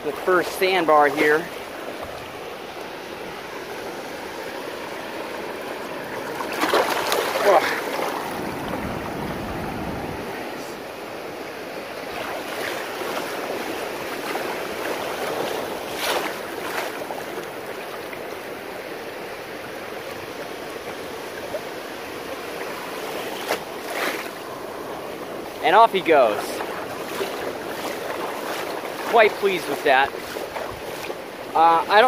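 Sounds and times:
ocean surf washing: 0.0s - 32.0s
sharp water splashes: 4.2s - 9.6s, 12.0s - 18.2s, 22.4s - 24.6s, 25.4s - 32.0s.

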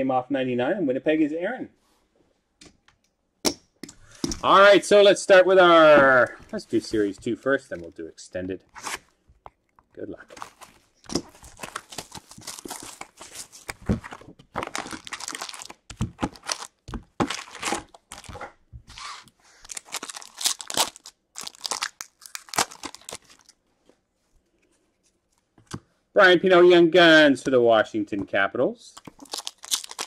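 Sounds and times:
foil wrappers tearing and crinkling: 10.4s - 18.4s, 19.0s - 23.5s, 29.0s - 30.0s.

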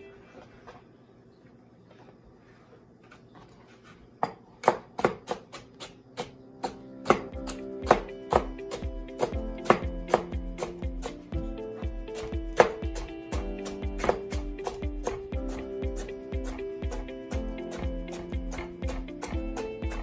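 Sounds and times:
knife chopping on cutting board: 4.2s - 11.2s, 12.2s - 20.0s
background music: 6.1s - 20.0s.

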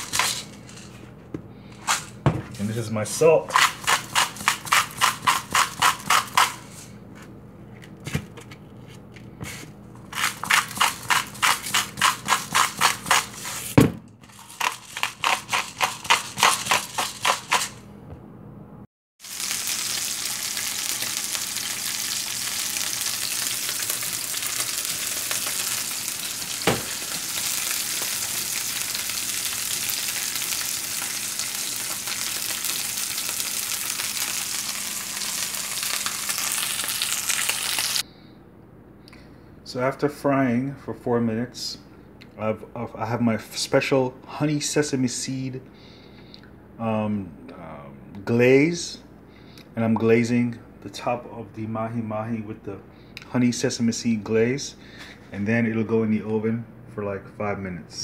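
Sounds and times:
salt grinder clicking: 14.4s - 17.8s
fish sizzling in frying pan: 19.2s - 38.0s
knock: 26.7s - 26.9s.

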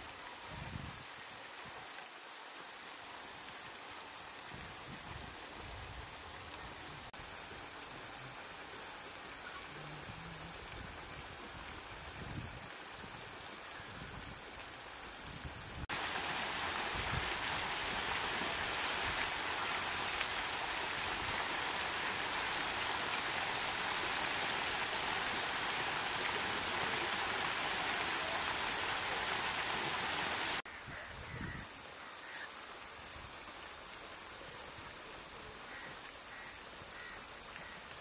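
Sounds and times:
steady rain pouring: 0.0s - 38.0s.

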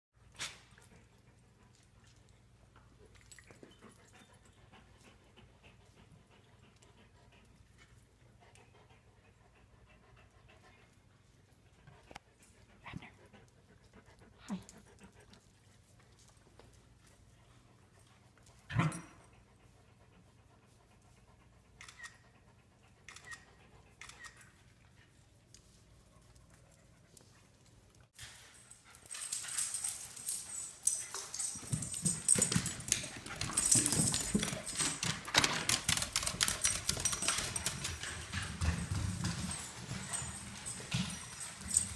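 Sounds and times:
dog claws clicking on wooden stairs: 28.9s - 41.9s.

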